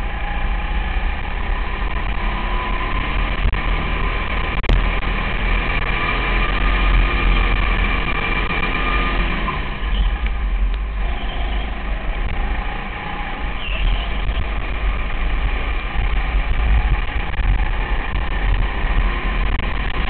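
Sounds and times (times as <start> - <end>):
go-kart engine running: 0.0 - 20.0.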